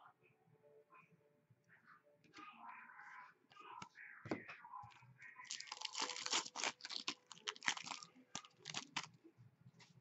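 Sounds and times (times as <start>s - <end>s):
foil wrapper tearing and crinkling: 5.5s - 9.1s.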